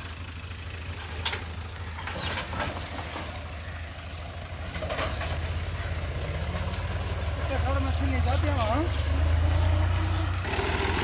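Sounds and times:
tractor diesel engine humming: 0:00.0 - 0:11.0.

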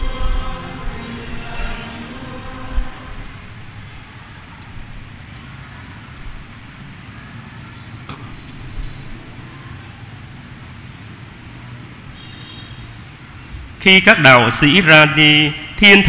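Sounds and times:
steady low hum: 0:00.0 - 0:16.0
sharp light clicks and clinks: 0:04.5 - 0:06.8, 0:07.6 - 0:09.0, 0:11.5 - 0:13.6.

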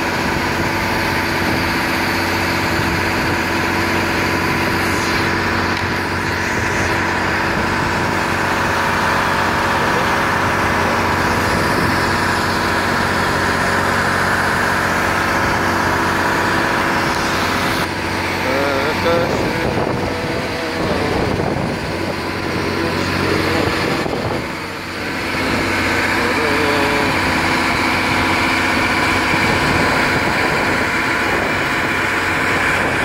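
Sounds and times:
boat engine droning: 0:00.0 - 0:33.0.

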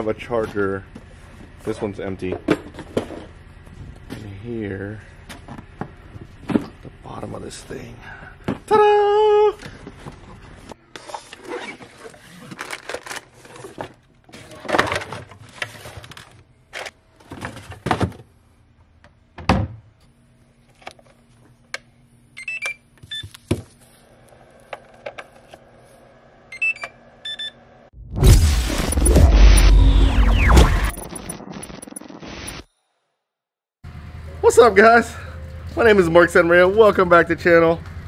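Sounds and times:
boxes rustling and clattering: 0:09.6 - 0:18.4
battery charger beeps: 0:22.4 - 0:23.4, 0:26.5 - 0:27.6.

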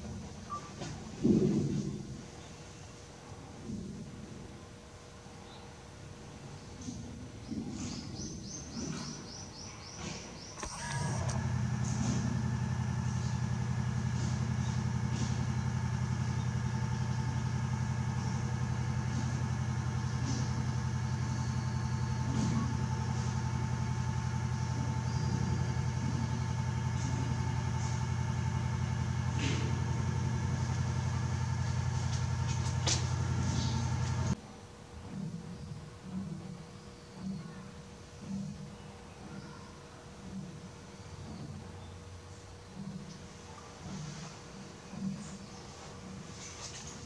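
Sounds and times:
machine motor humming: 0:10.0 - 0:34.4.

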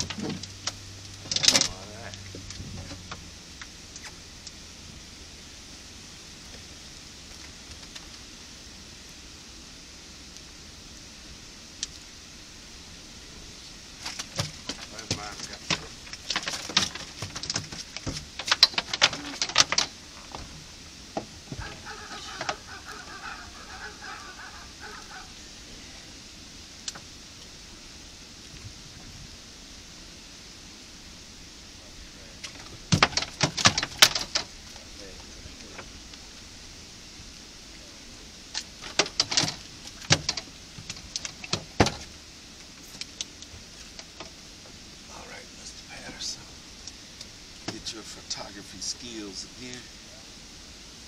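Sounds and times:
steady hiss: 0:00.0 - 0:51.0
sharp clicks and knocks: 0:14.0 - 0:20.6, 0:32.4 - 0:34.5, 0:38.5 - 0:42.1
birds chattering: 0:18.7 - 0:26.3.

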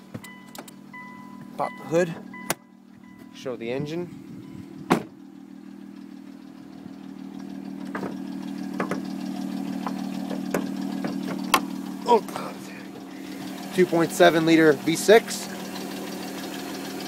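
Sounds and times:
car engine idling: 0:00.0 - 0:17.0
hood latch click: 0:00.2 - 0:00.8
car door slamming: 0:04.8 - 0:05.2, 0:07.8 - 0:09.1, 0:09.8 - 0:11.7.

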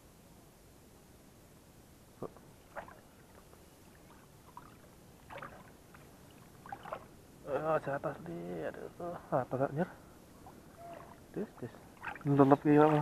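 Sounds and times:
faint splashes: 0:02.2 - 0:07.3, 0:10.3 - 0:13.0
water sloshing and lapping: 0:02.3 - 0:07.2, 0:10.4 - 0:13.0.

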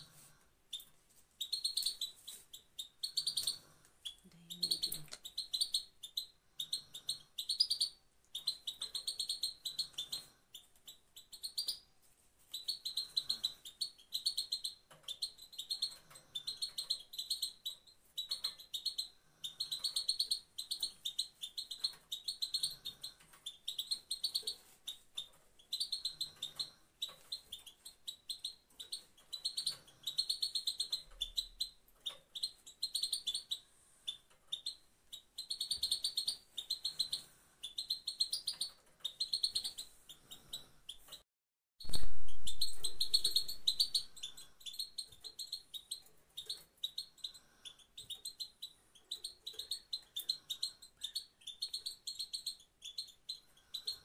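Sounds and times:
goldfinch calling: 0:41.9 - 0:47.4.

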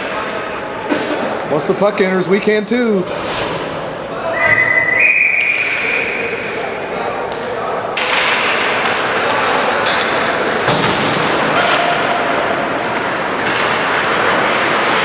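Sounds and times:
hockey sticks and puck knocking: 0:07.3 - 0:15.0.

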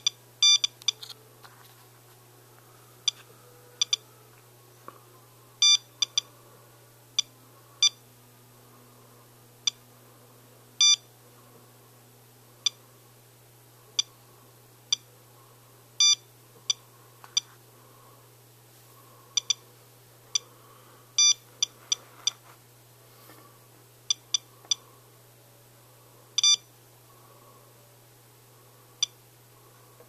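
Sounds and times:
dosimeter beeping: 0:00.0 - 0:01.2, 0:03.0 - 0:04.0, 0:05.6 - 0:06.3, 0:07.2 - 0:08.0, 0:10.8 - 0:11.1, 0:16.0 - 0:17.5, 0:19.4 - 0:19.6, 0:21.2 - 0:22.4, 0:24.1 - 0:24.8, 0:26.4 - 0:26.7.

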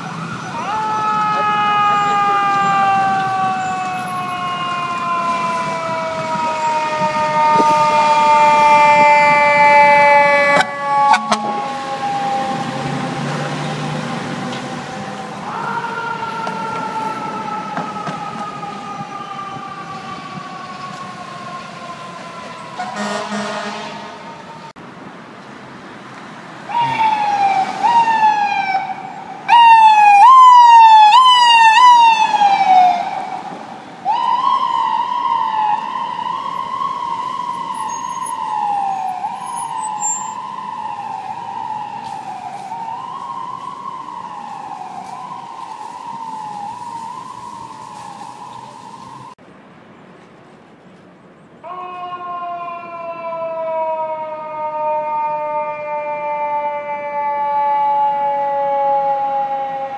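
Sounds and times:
ambulance siren yelping: 0:00.0 - 0:24.8, 0:26.7 - 0:49.4, 0:51.6 - 0:59.9
fire truck siren: 0:00.0 - 0:24.8, 0:26.6 - 0:49.4, 0:51.6 - 0:59.9
rising and falling siren: 0:00.0 - 0:24.8, 0:26.7 - 0:49.4, 0:51.6 - 0:59.9
vehicle horn blast: 0:22.8 - 0:24.2.

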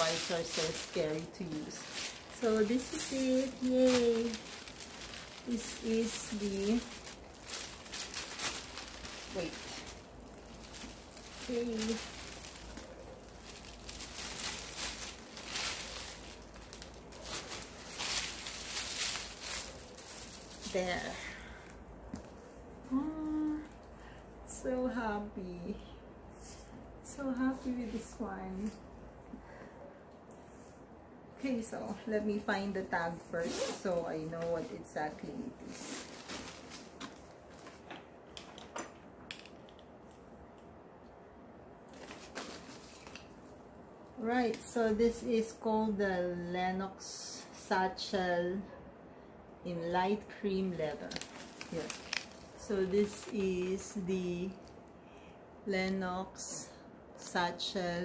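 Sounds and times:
paper and plastic rustling: 0:00.0 - 0:21.2, 0:33.8 - 0:38.7, 0:41.9 - 0:43.6, 0:50.8 - 0:54.6.

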